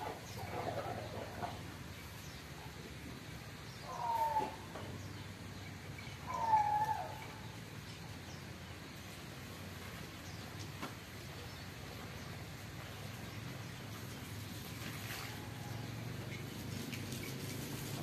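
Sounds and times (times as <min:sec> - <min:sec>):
short falling animal calls: 0:03.9 - 0:04.7.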